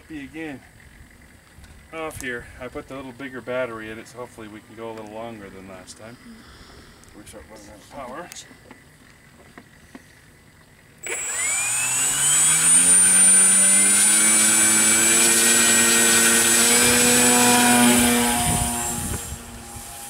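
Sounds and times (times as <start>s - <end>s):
model plane electric motor whine: 11.0s - 20.0s.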